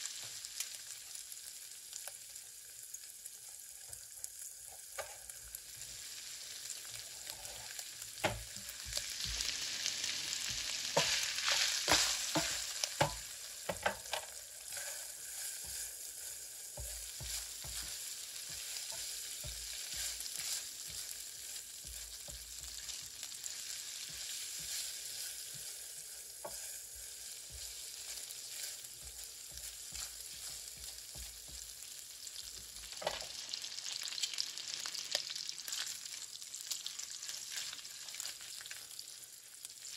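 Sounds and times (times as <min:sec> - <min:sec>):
food sizzling in a frying pan: 0:00.0 - 0:39.9
utensil scraping a pan: 0:10.5 - 0:23.1, 0:24.0 - 0:31.6.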